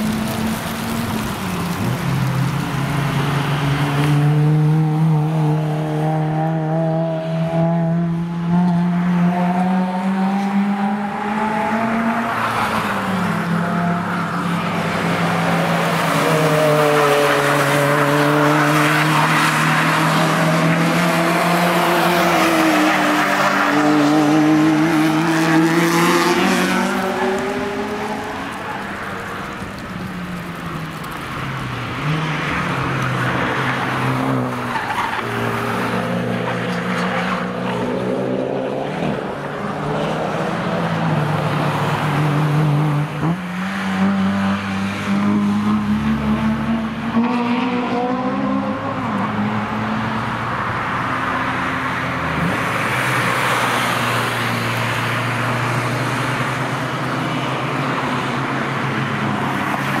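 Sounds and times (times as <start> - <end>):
race cars driving past: 0.0 - 60.0.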